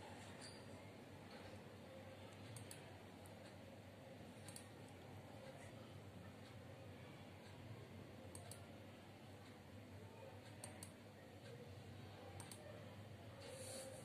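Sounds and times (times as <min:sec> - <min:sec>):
computer mouse clicks: 0:02.3 - 0:03.6, 0:04.4 - 0:05.6, 0:08.3 - 0:08.7, 0:10.4 - 0:11.6, 0:12.3 - 0:12.7.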